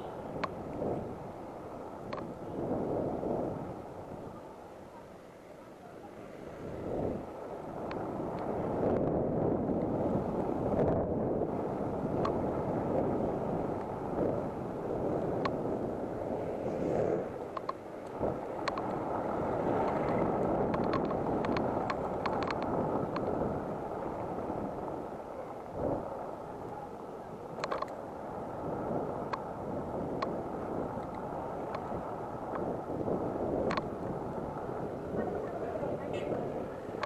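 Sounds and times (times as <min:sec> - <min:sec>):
wind on microphone: 0:00.0 - 0:05.2, 0:06.0 - 0:37.0
faint steady whine: 0:00.0 - 0:37.0
sharp ticks and rattles: 0:19.8 - 0:23.4.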